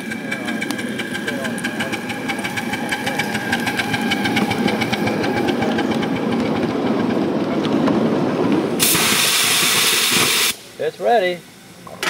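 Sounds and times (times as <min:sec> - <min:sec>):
train cars clicking over track: 0:00.0 - 0:10.6
loud steam hiss: 0:08.7 - 0:12.0.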